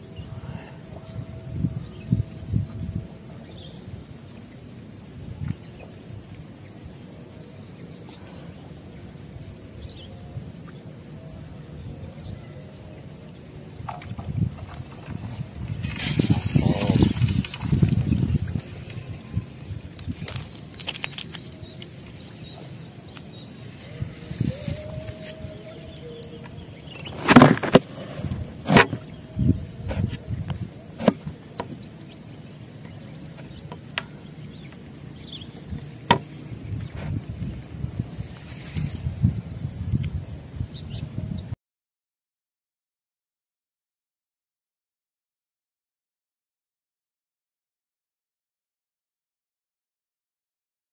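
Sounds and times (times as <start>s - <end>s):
high insect drone: 0.0s - 41.4s
wind rumbling on microphone: 0.0s - 41.6s
high-pitched insect drone: 21.4s - 27.1s.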